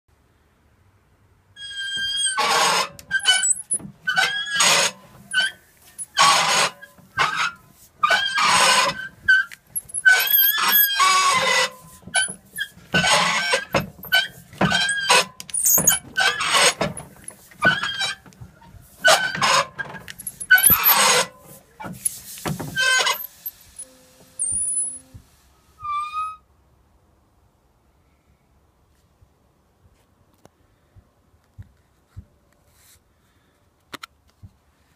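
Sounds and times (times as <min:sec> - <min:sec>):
high squeaks: 0:01.6 - 0:25.2, 0:25.8 - 0:26.4.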